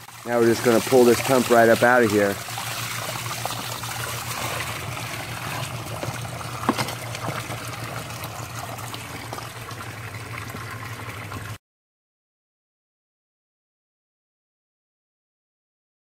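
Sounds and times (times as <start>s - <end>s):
water trickling and pouring: 0.0s - 11.6s.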